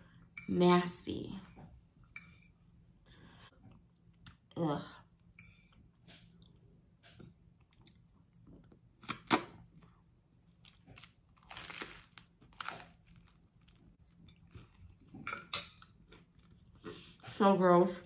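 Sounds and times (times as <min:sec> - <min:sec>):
crunchy bites and chewing: 0:10.6 - 0:13.9.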